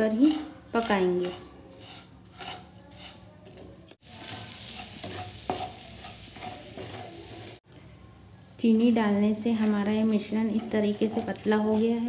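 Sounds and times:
spatula scraping pan: 0:00.0 - 0:07.6, 0:08.8 - 0:12.0
light sizzle: 0:03.9 - 0:07.6.

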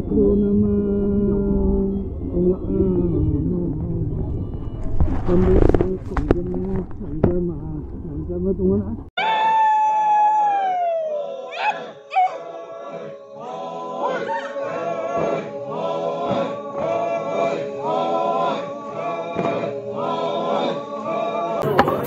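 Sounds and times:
music with singing voices: 0:11.4 - 0:22.0.

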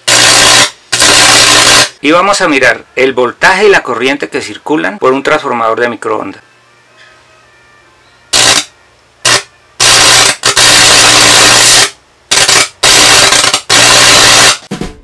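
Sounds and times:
harsh electrical arcing: 0:00.0 - 0:02.0, 0:08.3 - 0:14.7
faint mains hum: 0:00.0 - 0:13.8.

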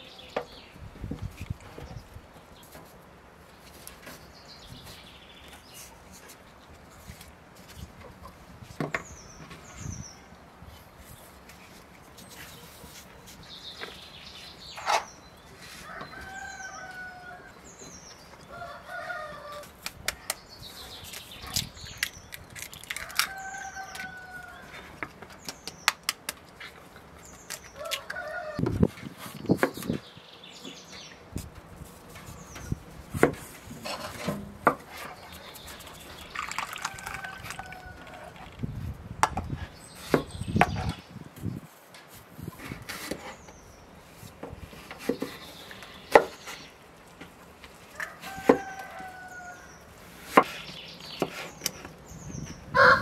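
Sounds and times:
small birds chirping: 0:03.5 - 0:28.6, 0:34.9 - 0:38.9, 0:39.5 - 0:41.7, 0:42.4 - 0:46.8, 0:48.3 - 0:52.9
eggs cracked against bowl: 0:36.3 - 0:38.6.

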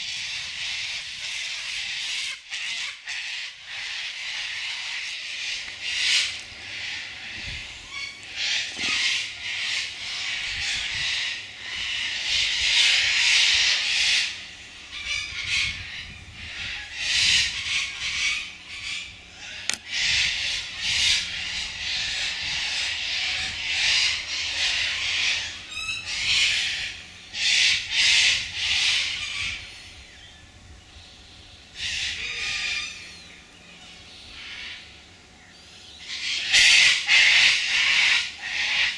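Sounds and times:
cockatoos screeching: 0:31.8 - 0:34.9.

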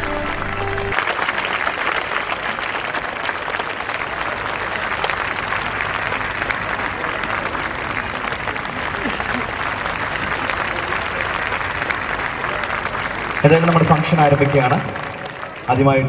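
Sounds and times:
held musical note: 0:00.0 - 0:01.0
audience applauding: 0:00.0 - 0:16.0.

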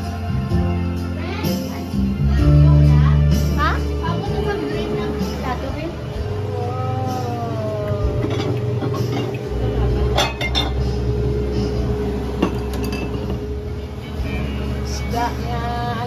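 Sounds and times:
steady hum: 0:02.0 - 0:16.0
dishes and cutlery clinking: 0:08.2 - 0:10.9, 0:12.4 - 0:13.5.

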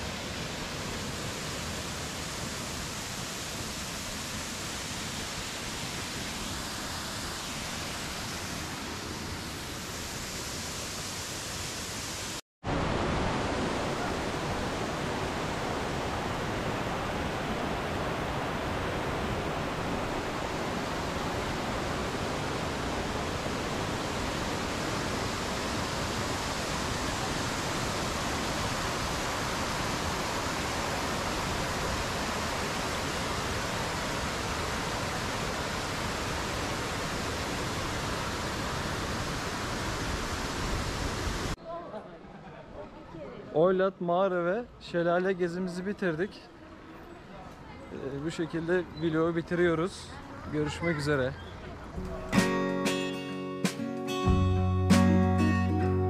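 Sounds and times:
waterfall rushing: 0:00.0 - 0:41.6.

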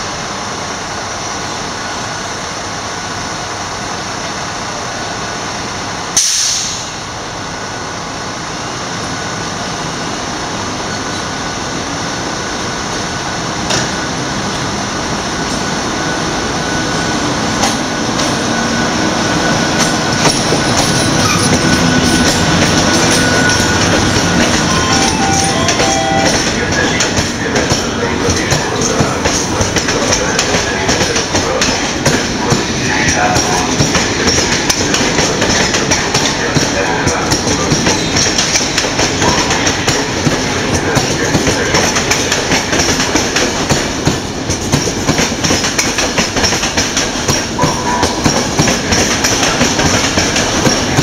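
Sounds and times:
sharp hiss: 0:06.2 - 0:07.1
electric locomotive passing: 0:06.8 - 0:51.0.

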